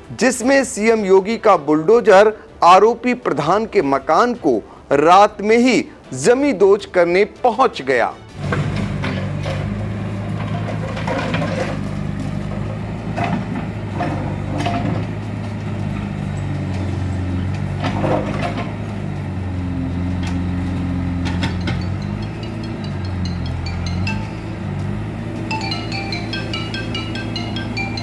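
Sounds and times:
diesel engine running: 8.3s - 28.0s
falling masonry crashes: 8.4s - 15.2s.

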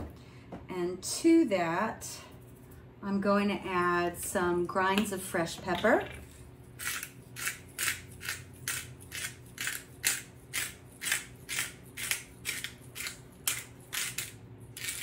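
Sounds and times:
pepper mill grinding: 6.0s - 15.0s.

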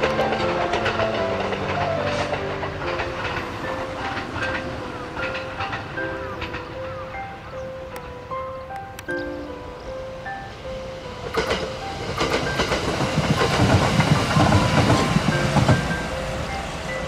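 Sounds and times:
train wheels clattering over rail joints: 0.0s - 7.0s, 11.2s - 16.9s
bell-like background music: 0.0s - 17.0s.

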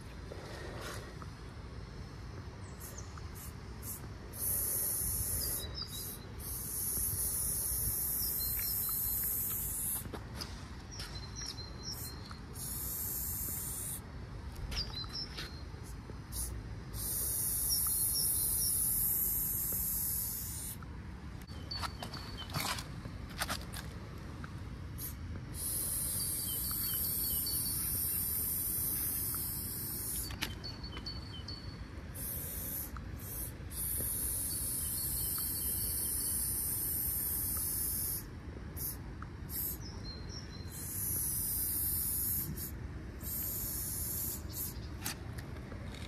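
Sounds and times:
spray paint can hissing: 2.9s - 10.1s, 12.6s - 14.0s, 16.3s - 20.8s, 25.0s - 30.3s, 32.2s - 38.2s, 38.8s - 39.8s, 40.8s - 44.8s.

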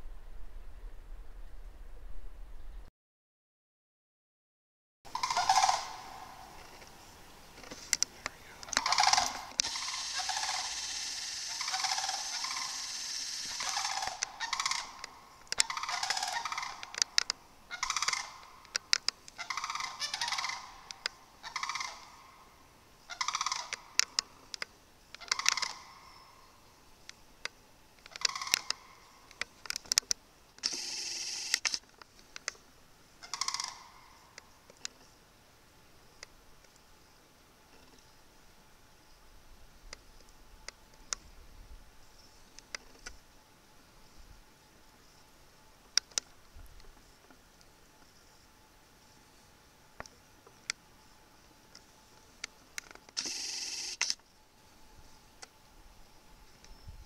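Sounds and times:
crane bugling calls: 5.1s - 6.9s, 7.6s - 24.2s, 25.2s - 26.3s, 28.1s - 29.4s, 33.2s - 34.2s.

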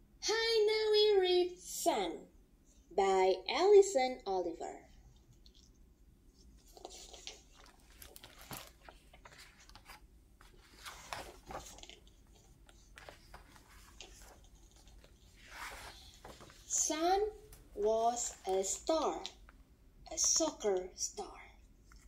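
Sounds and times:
book pages turning: 6.5s - 16.8s, 17.5s - 20.6s.

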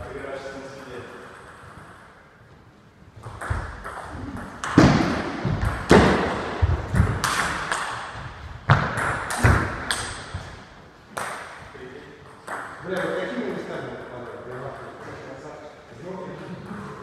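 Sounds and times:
loud thumps and knocks: 3.3s - 10.6s.

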